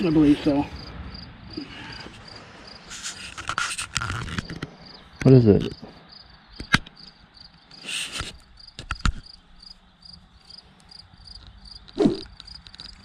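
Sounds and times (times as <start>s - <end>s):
insect chirping: 0.0s - 13.0s
brief rustle: 2.9s - 4.7s.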